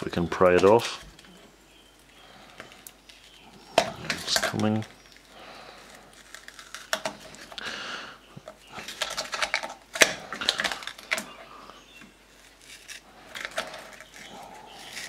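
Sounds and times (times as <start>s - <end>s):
scratchy scraping: 12.3s - 15.0s.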